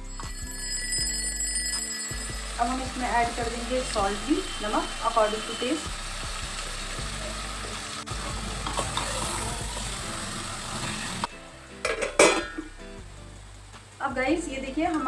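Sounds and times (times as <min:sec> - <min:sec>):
meat sizzling: 0:02.1 - 0:15.0
metal lid clanking: 0:11.8 - 0:12.7.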